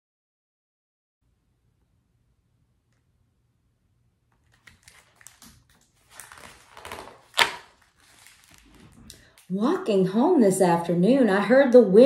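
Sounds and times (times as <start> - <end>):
page flapping: 4.4 - 9.3
book page turning: 4.4 - 9.5.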